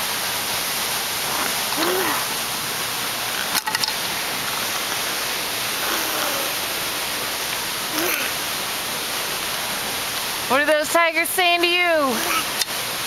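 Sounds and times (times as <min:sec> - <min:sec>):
steady hiss: 0:00.0 - 0:13.0
faint voice-like sound: 0:05.8 - 0:06.8, 0:07.9 - 0:08.4.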